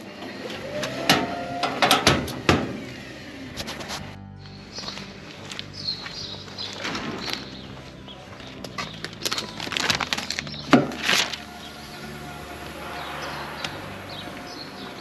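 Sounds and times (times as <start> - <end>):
footsteps: 3.5 - 15.0
steady low hum: 11.4 - 15.0.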